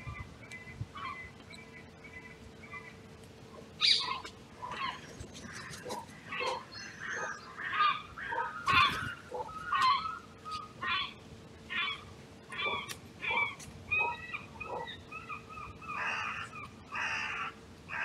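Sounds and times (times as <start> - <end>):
crows cawing: 3.8 - 18.0.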